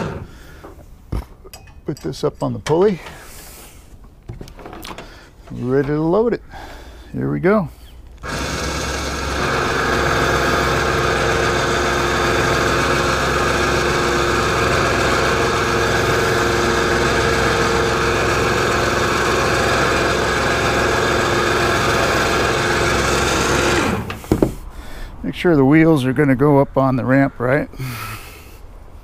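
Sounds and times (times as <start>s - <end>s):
electric winch whining: 0.0s - 0.8s, 8.2s - 24.3s.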